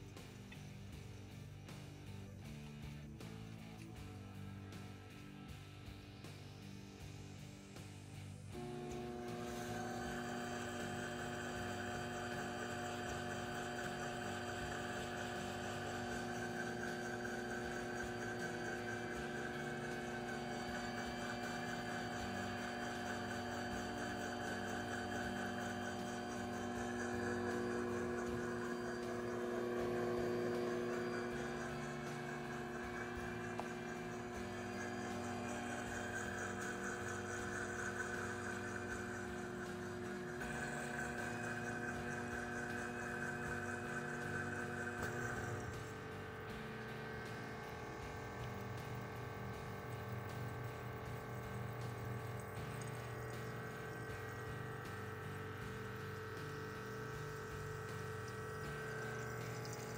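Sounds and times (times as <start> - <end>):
motor and pump hum: 0.0 - 59.9.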